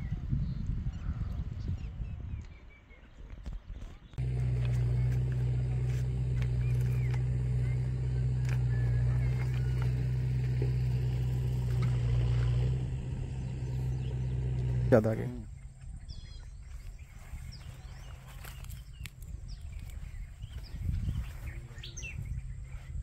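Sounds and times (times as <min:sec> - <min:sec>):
engine humming: 0:04.2 - 0:22.7.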